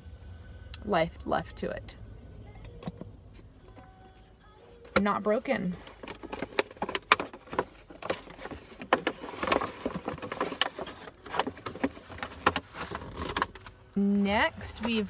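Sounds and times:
shopping bags rustling: 5.0s - 15.0s.

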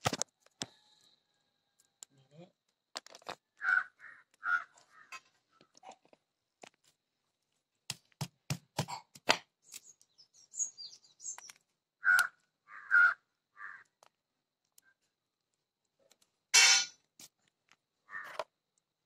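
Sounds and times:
stone cracking nut shells: 1.8s - 3.5s
crow cawing: 3.6s - 5.3s, 12.0s - 14.0s, 18.1s - 18.4s.

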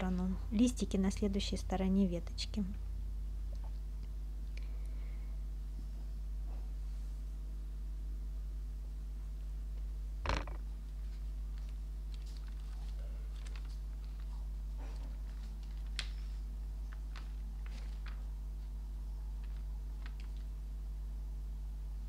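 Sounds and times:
steady low hum: 0.0s - 22.0s
sharp knock: 10.2s - 10.6s.

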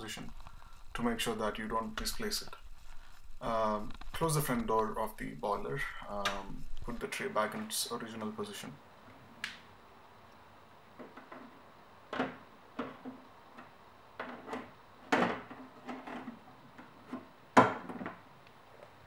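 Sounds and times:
plastic knocks and clicks: 11.0s - 18.2s.

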